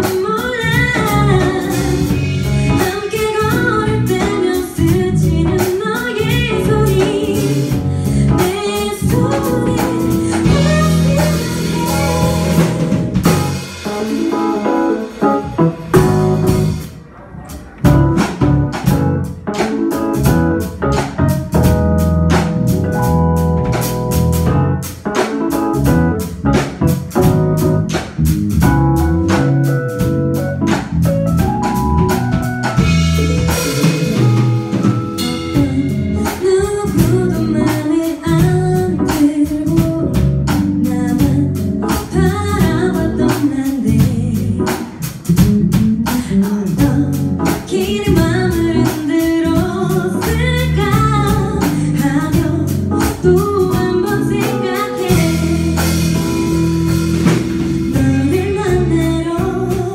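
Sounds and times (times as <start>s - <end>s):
female lead vocal: 0.0s - 12.9s, 35.2s - 56.2s, 57.9s - 59.9s
bass guitar: 0.0s - 59.9s
drum kit: 0.0s - 59.9s
keyboard: 0.0s - 59.9s.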